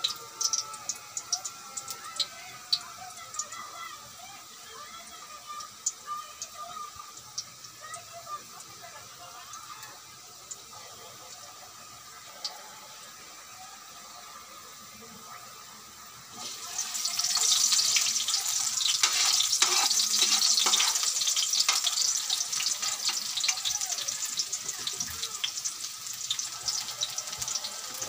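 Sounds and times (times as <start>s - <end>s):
onion sizzling in hot oil: 0.0s - 28.0s
metal ladle stirring in wok: 16.9s - 23.3s.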